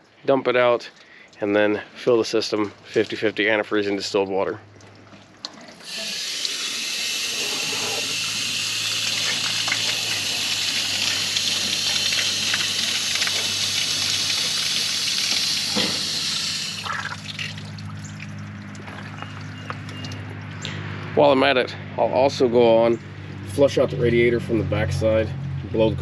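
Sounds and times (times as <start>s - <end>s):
water rushing: 4.8s - 19.6s.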